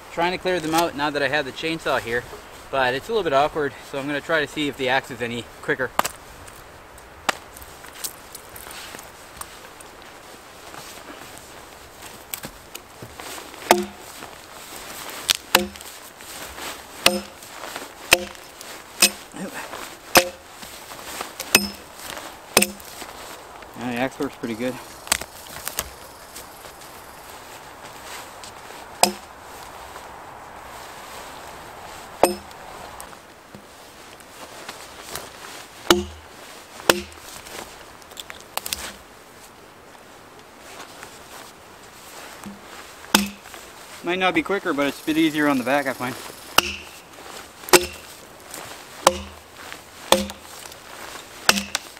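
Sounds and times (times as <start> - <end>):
axe chopping wood: 13.6 - 14.1, 15.3 - 16.0, 17.0 - 17.5, 18.1 - 19.5, 20.2 - 20.5, 21.4 - 21.9, 22.6 - 23.0, 25.1 - 25.9, 29.0 - 29.3, 32.2 - 32.6, 35.9 - 36.3, 36.9 - 37.3, 42.4 - 43.5, 46.5 - 47.0, 47.7 - 48.1, 49.0 - 49.4, 50.1 - 50.7, 51.4 - 51.9.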